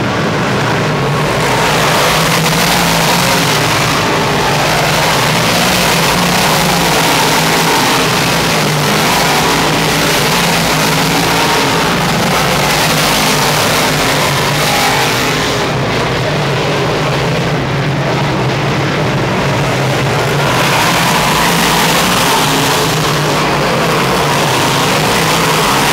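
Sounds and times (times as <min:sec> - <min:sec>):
race car engines roaring: 0:00.0 - 0:25.9.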